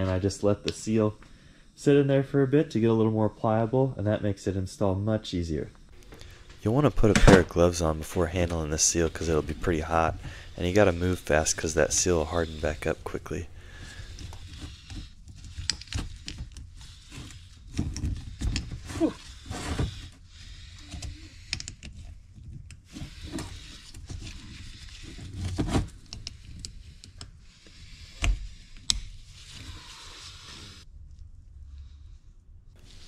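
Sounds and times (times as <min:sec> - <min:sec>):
gloved hands rubbing and rustling: 0:05.9 - 0:31.3, 0:32.7 - 0:33.0.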